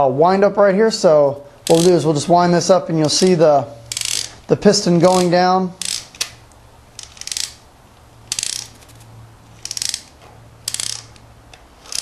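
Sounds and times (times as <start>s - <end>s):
ratchet clicking: 1.6s - 2.1s, 3.9s - 4.4s, 5.0s - 7.6s, 8.2s - 12.0s.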